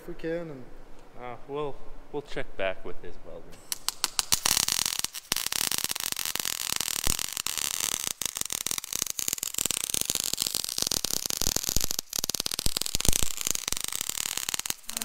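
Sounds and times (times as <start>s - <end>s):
arc welding crackling hiss: 3.6s - 15.0s.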